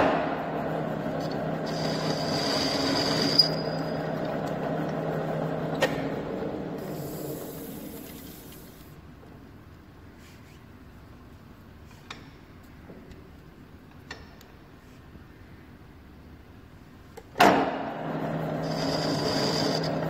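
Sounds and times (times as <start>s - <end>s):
lathe gear and motor hum: 0.0s - 8.9s, 17.7s - 20.0s
thin high whine: 0.0s - 8.9s, 18.2s - 20.0s.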